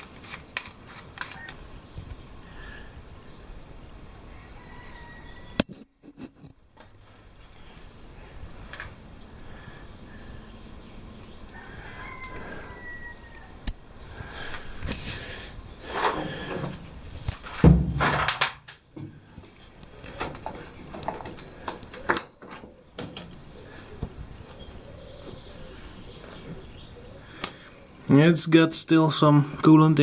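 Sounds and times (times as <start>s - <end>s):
hands handling metal parts: 0.0s - 1.6s, 16.0s - 24.2s
loud thump: 17.6s - 18.6s.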